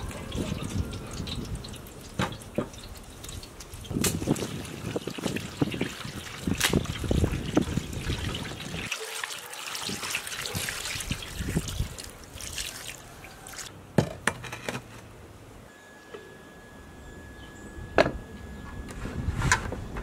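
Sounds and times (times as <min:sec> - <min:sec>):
water trickling from a jug: 0:00.0 - 0:13.7.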